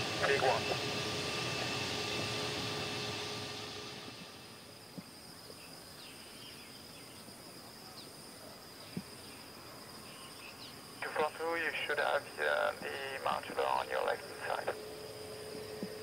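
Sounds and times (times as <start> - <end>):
jet engine taxiing: 0.0 - 5.6, 11.0 - 16.0
insect buzz: 0.2 - 16.0
faint bird chirps: 5.4 - 10.8.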